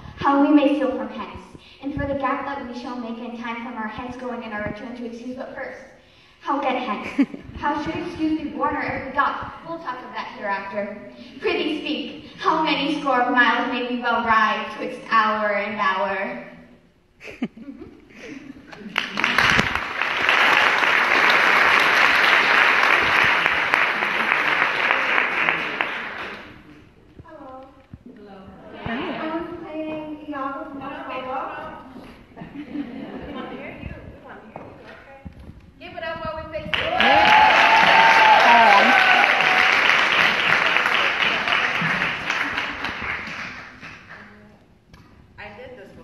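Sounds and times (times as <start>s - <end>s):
audience applauding: 18.7s - 26.6s, 36.7s - 44.2s.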